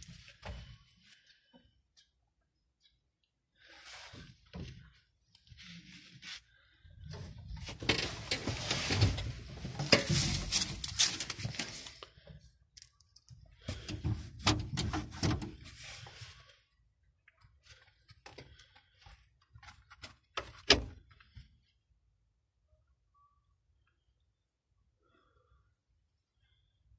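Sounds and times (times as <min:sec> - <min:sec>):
rustling scraping and clicks: 0:07.2 - 0:12.0.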